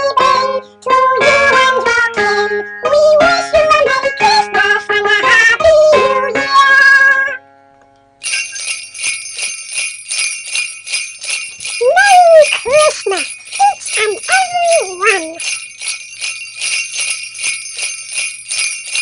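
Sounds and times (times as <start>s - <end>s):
jingle bells shaking: 8.2s - 19.0s
high voice with sliding pitch: 11.8s - 15.5s.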